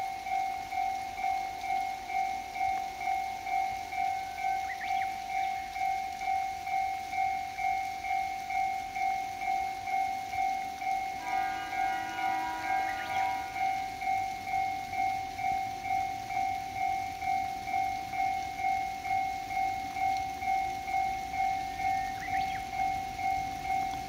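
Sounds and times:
railway warning bell dinging: 0.0 - 24.0
pitched tone: 11.1 - 16.2.

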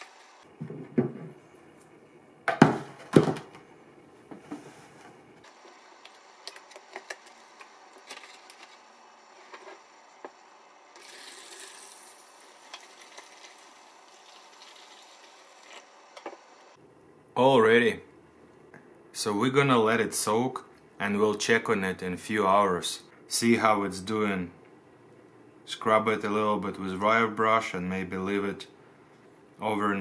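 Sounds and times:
liquid being poured: 11.0 - 15.8.

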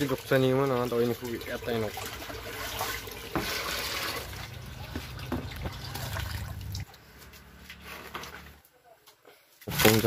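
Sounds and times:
water poured into a bucket: 0.0 - 7.0, 9.6 - 10.0.

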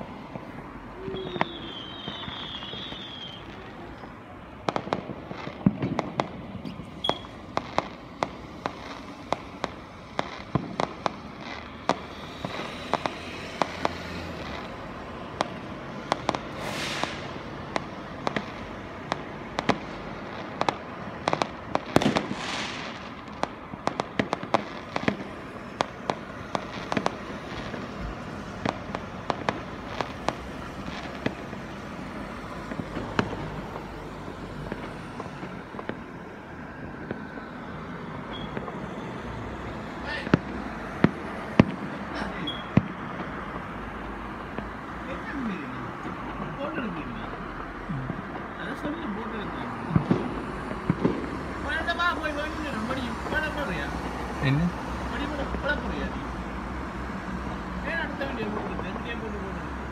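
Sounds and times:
fireworks bangs and pops: 0.0 - 59.9
fireworks hissing: 0.4 - 6.0, 6.6 - 36.0.

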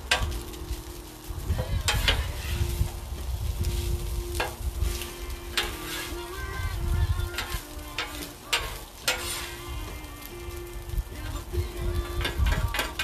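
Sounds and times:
steady low rumble: 0.0 - 12.9
food sizzling on a griddle: 0.0 - 13.0
sharp cooking clicks: 0.0 - 13.0.

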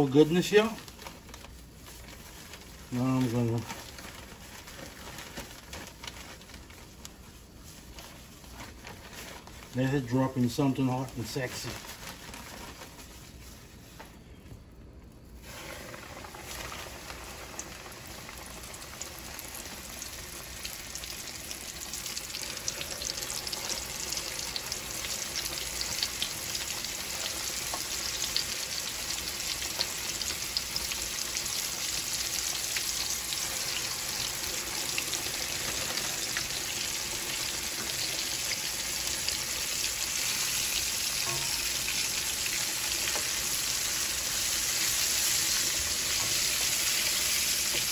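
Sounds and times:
chicken sizzling in hot oil: 15.4 - 47.9.

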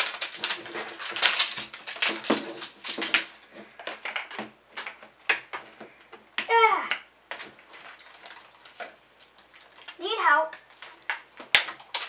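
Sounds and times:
plastic wrapping being torn off: 0.0 - 5.8, 10.6 - 12.0.

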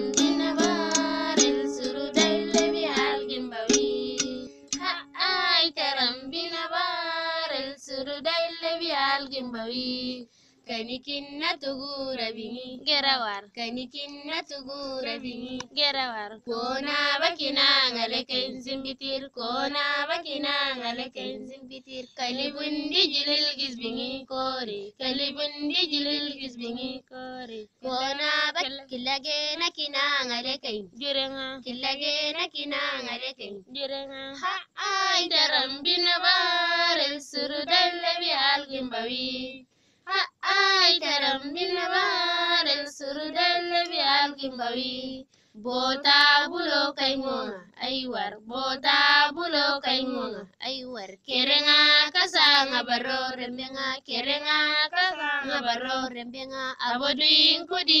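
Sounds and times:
high-pitched voice singing: 0.0 - 5.6, 54.7 - 56.8.

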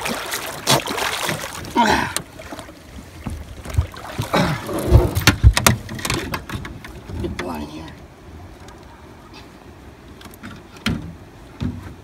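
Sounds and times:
water splashing and dripping: 0.0 - 7.5
thumps against boat: 3.2 - 7.6, 10.3 - 12.0.

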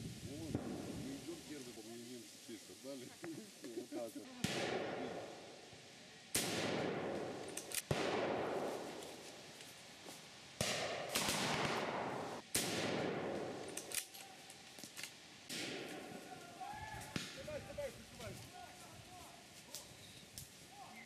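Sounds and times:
rifle shots echoing: 4.4 - 5.6, 6.3 - 9.5, 10.6 - 14.1, 15.5 - 16.3.

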